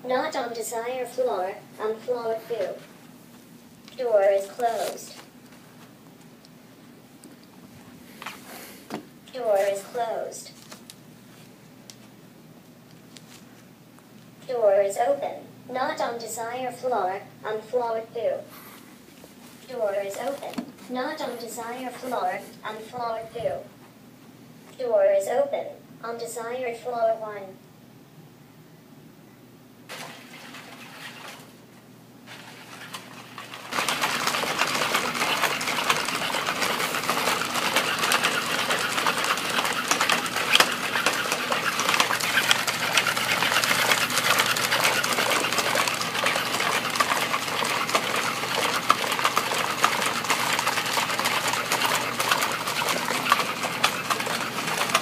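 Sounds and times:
robot joint motors whirring and clicking: 33.7 - 55.0.

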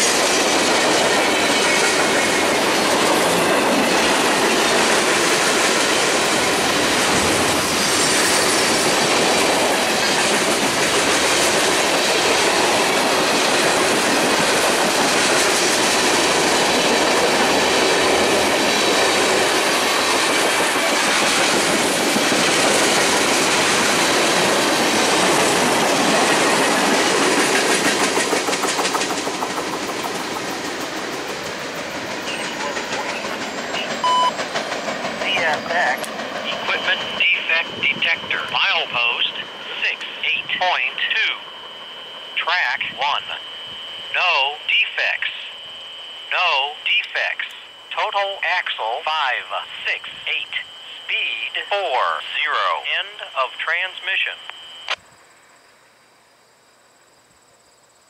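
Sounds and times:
train wheels rolling on rails: 0.0 - 44.7.

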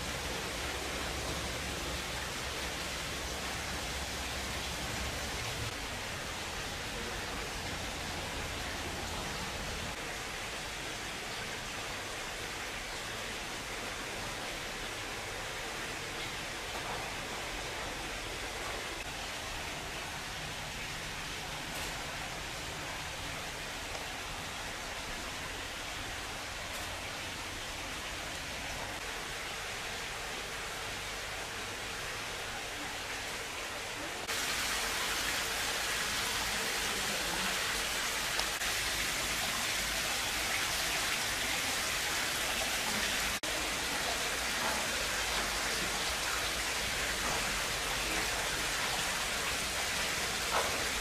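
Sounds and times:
steady rushing hiss: 0.0 - 51.0.

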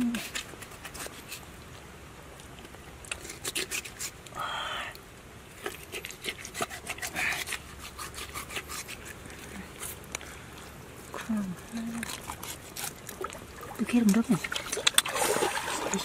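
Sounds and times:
knife rasping through hide: 3.2 - 4.2, 5.6 - 10.0, 11.9 - 13.2.

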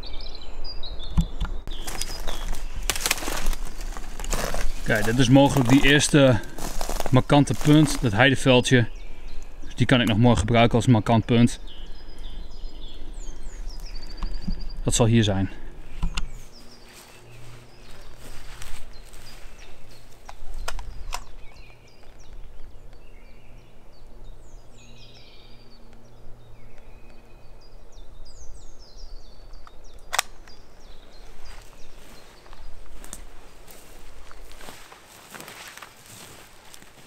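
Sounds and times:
birds chirping: 0.0 - 37.0
steady low hum: 0.1 - 37.0
sharp clicks: 20.2 - 21.6, 29.5 - 30.6.

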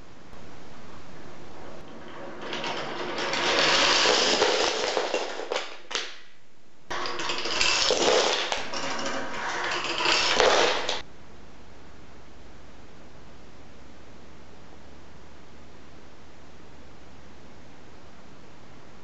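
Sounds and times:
wooden toy trains rattling: 1.3 - 6.2, 6.9 - 11.0.

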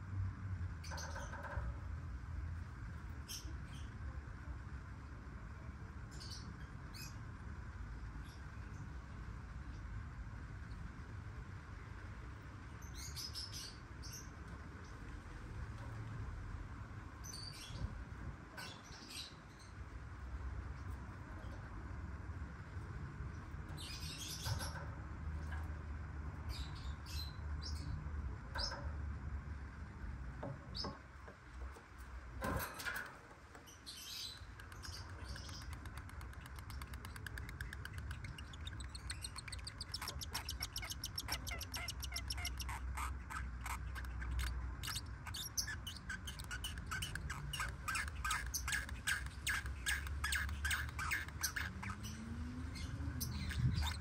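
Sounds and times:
lovebirds chirping and squawking: 0.8 - 1.7, 3.2 - 4.0, 17.2 - 19.8, 23.6 - 28.9, 31.6 - 54.0.

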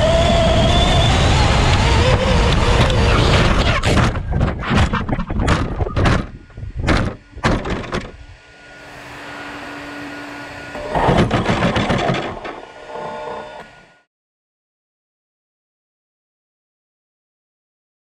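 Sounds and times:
rushing noise: 0.0 - 14.0
faint hum: 0.0 - 14.1
toy car knocks and thuds: 10.9 - 12.5.

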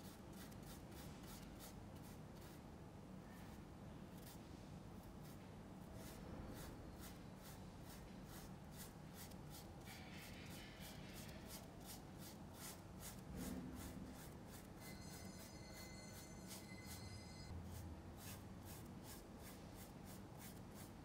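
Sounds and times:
paintbrush scrubbing on canvas: 5.2 - 21.0.

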